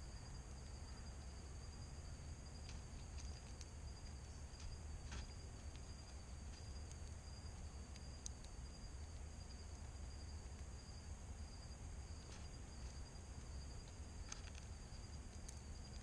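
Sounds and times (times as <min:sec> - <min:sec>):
insects chirping: 0:00.0 - 0:16.0
faint clicks: 0:04.6 - 0:09.3, 0:13.8 - 0:16.0.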